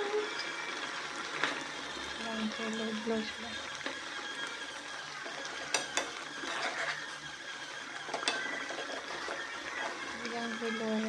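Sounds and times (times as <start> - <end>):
ladle stirring curry in a pan: 3.7 - 10.3.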